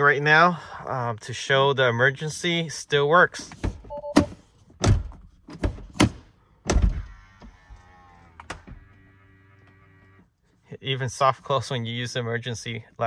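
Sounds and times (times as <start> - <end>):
soft-close latch motor whir: 7.0 - 10.3.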